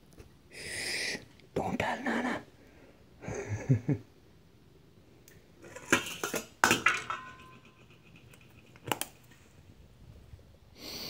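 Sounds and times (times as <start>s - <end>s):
metal pots and utensils clattering: 5.6s - 9.4s.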